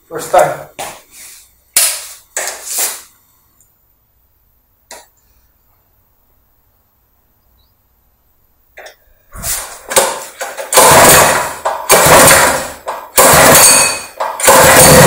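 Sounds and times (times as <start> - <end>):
recoil starter pulls: 9.6 - 15.0
small engine coughing and firing: 10.8 - 15.0.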